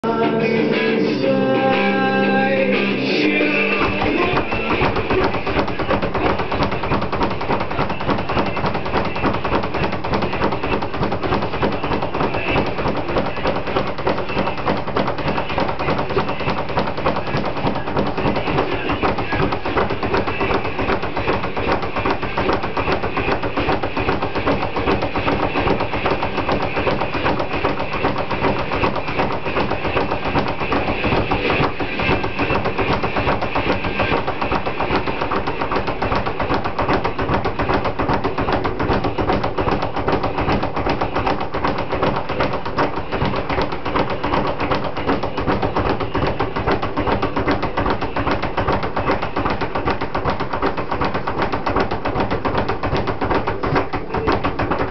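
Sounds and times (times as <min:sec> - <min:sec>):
speed bag rattling: 0:03.7 - 0:54.9.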